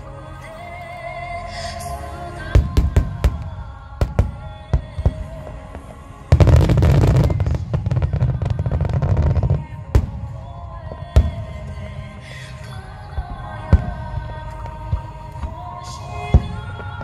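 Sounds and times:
fireworks booming and crackling: 2.6 - 12.0, 13.2 - 17.0.

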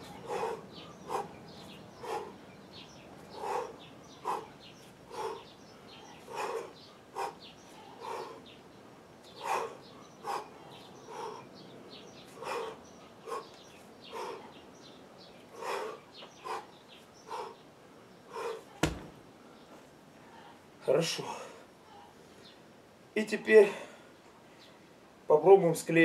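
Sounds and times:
sharp knock: 18.8 - 19.2.

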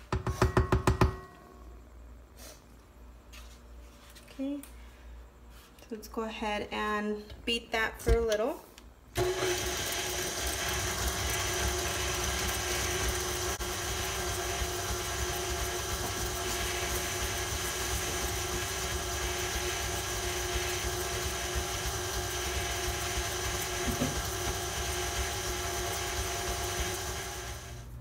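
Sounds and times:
stand mixer motor hum: 9.2 - 28.0.

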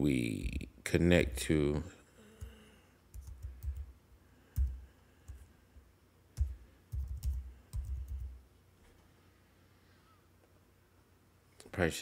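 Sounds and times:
computer keyboard typing: 3.1 - 3.9, 4.6 - 5.4, 6.4 - 8.4.

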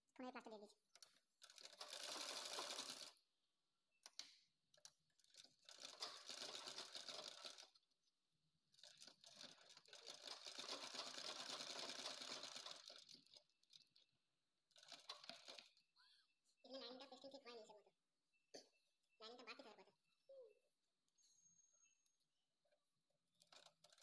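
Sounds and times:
sewing machine needle clicking: 0.9 - 3.1, 4.0 - 7.7, 8.8 - 14.0, 14.7 - 15.8, 23.4 - 24.0.

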